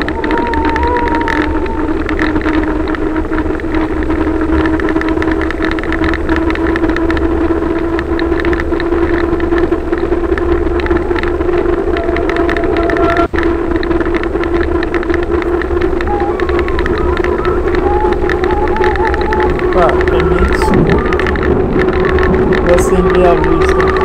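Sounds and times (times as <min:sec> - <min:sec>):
steady hum: 0:00.0 - 0:24.0
wind buffeting microphone: 0:00.0 - 0:24.0.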